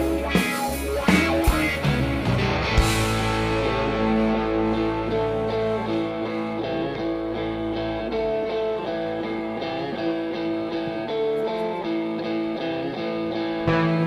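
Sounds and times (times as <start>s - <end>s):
deep bass: 0.0s - 11.1s
electric guitar strumming chords: 0.0s - 14.0s
live rock band playing: 0.0s - 14.0s.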